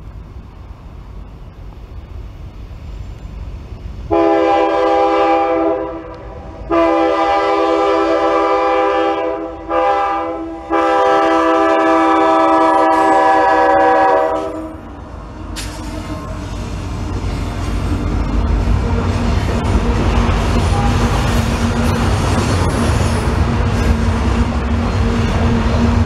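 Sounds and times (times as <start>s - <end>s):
train rumble: 0.0s - 26.0s
locomotive air horn blasts: 4.1s - 14.9s, 20.7s - 21.2s.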